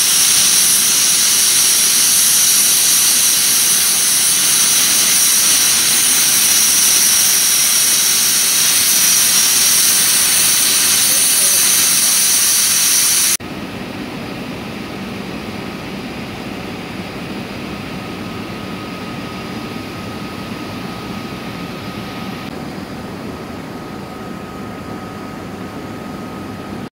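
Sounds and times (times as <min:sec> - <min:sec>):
machine-like drone: 0:00.0 - 0:13.4
thin steady whistle: 0:00.0 - 0:13.4.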